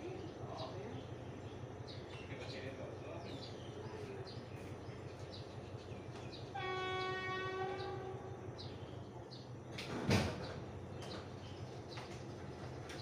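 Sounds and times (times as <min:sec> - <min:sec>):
locomotive horn blast: 0:06.5 - 0:08.5.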